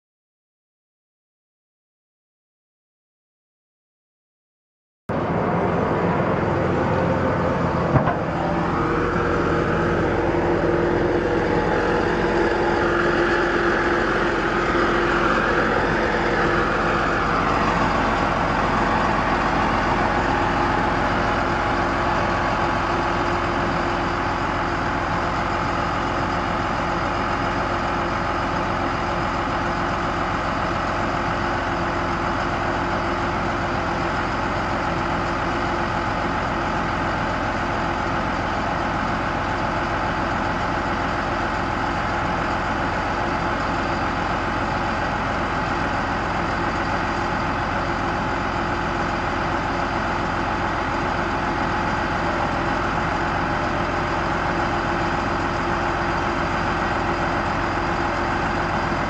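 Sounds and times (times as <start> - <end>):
high whine: 5.1 - 24.0
diesel truck engine idling: 5.1 - 59.0.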